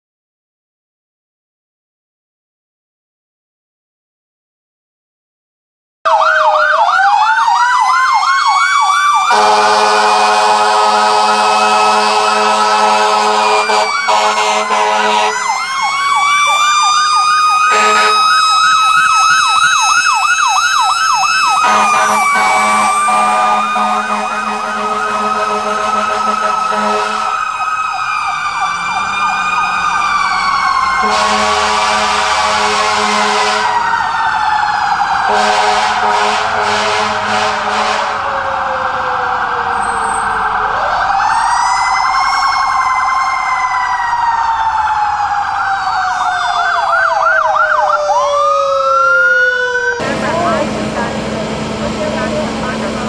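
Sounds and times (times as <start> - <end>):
fire truck sirens wailing and yelping: 6.1 - 53.0
multi-tone air horn blasts: 9.3 - 15.5, 17.7 - 18.3, 21.6 - 27.4, 31.0 - 33.8, 35.3 - 38.2.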